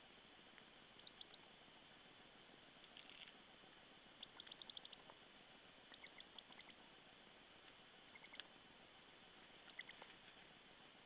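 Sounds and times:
low steady hiss: 0.0s - 11.0s
high-pitched bird chirps: 1.0s - 1.4s, 4.2s - 5.0s, 5.9s - 6.8s, 8.1s - 8.4s, 9.6s - 10.0s.

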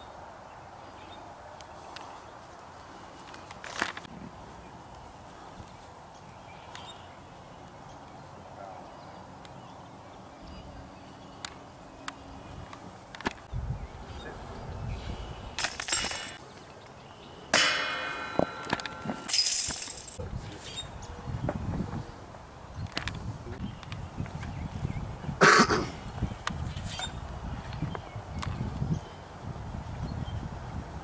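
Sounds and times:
metal clang ringing: 15.6s - 16.4s, 17.5s - 20.2s
chains jingling: 15.6s - 17.0s, 19.0s - 20.2s.

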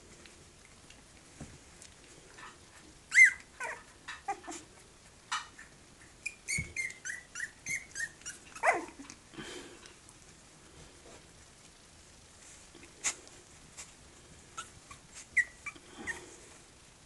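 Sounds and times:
puppies yipping and whimpering: 3.1s - 4.7s, 5.6s - 9.2s, 14.5s - 16.4s.

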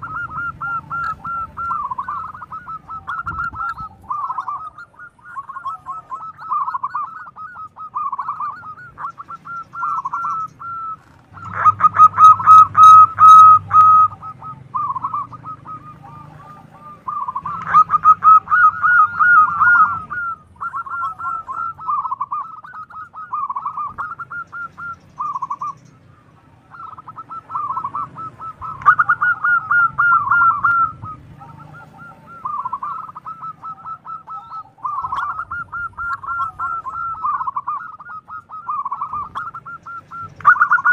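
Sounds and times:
dove cooing: 0.0s - 40.9s.

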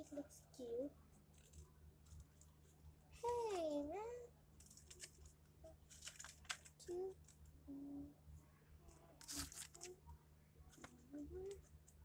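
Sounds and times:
paper crinkling and tapping: 1.1s - 3.7s, 4.6s - 7.5s.

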